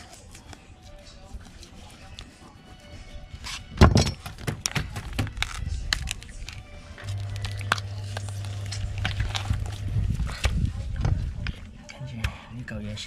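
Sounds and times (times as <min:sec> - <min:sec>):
cleaver chopping on wooden board: 0:03.9 - 0:05.4
steady low hum: 0:07.0 - 0:11.4.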